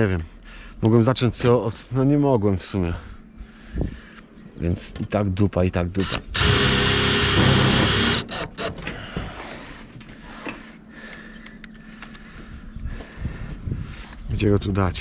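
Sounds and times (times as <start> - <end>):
cordless drill driving screw into metal: 6.0 - 9.0.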